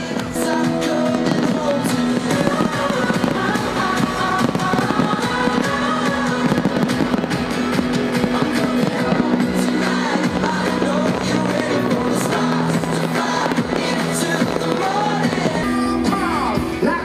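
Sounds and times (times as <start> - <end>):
fireworks crackling and popping: 0.0 - 17.0
live band music over speakers: 0.0 - 17.0.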